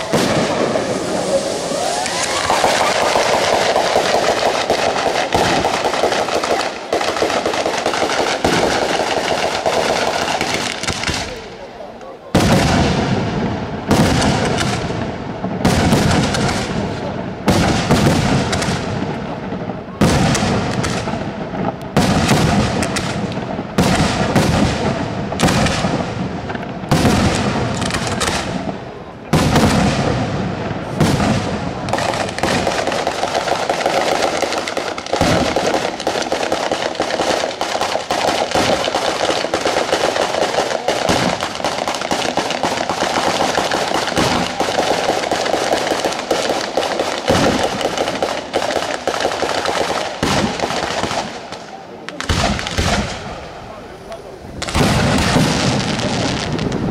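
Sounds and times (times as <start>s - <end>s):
fireworks bombs bursting: 0.0s - 56.9s
rattle of firecrackers: 0.0s - 56.9s.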